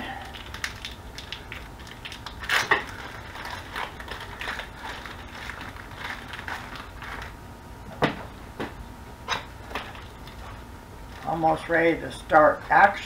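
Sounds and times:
plastic packaging crinkling and tearing: 0:00.2 - 0:07.4.

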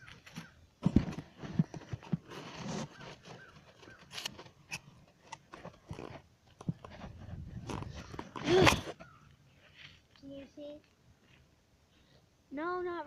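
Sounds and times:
camera handling knocks and rustling: 0:00.0 - 0:04.6.

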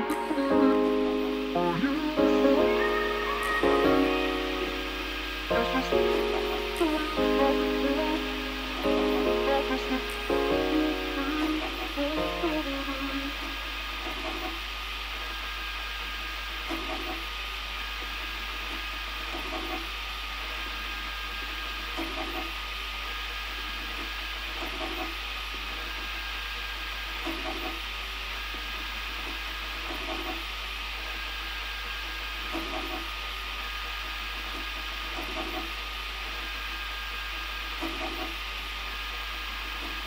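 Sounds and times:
stepper motors humming: 0:00.0 - 0:23.0
printer fan whirring: 0:00.0 - 0:40.0.

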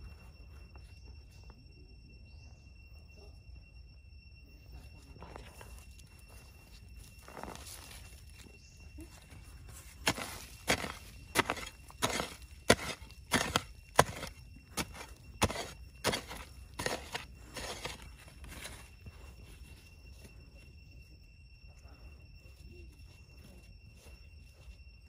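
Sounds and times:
digging tool chopping soil: 0:10.0 - 0:18.8.

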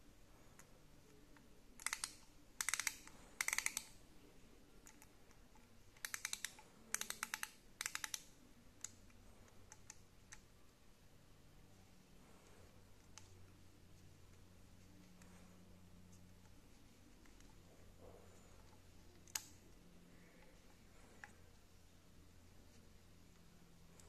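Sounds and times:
ratchet screwdriver clicking: 0:01.8 - 0:03.9.

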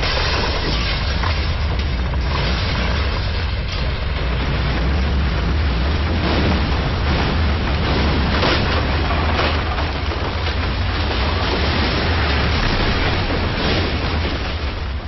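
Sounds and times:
deep earthquake rumble: 0:00.0 - 0:15.0
noisy rattling: 0:00.0 - 0:15.0.

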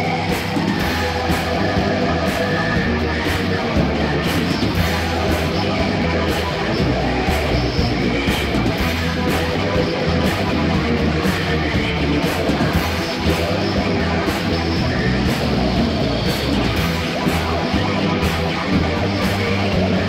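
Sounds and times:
heavy metal music: 0:00.0 - 0:20.0.

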